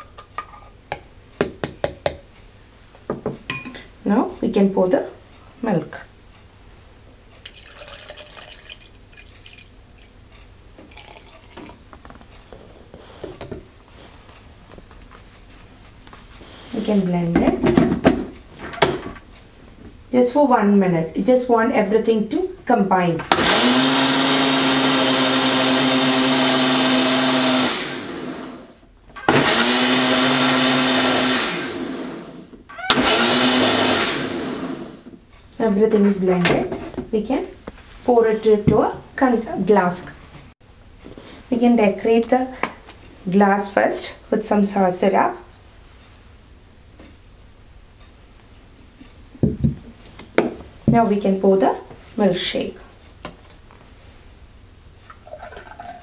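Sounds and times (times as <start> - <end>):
milk pouring into plastic cup: 7.4 - 9.7, 10.9 - 11.8
blender clicking on: 23.3 - 35.0
blender motor running: 23.3 - 35.0.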